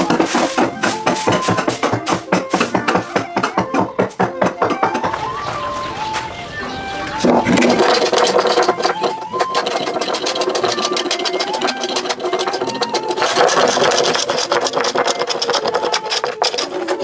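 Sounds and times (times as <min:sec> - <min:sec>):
hand plane shaving wood: 0:00.0 - 0:05.4, 0:07.2 - 0:17.0
background music: 0:00.0 - 0:17.0.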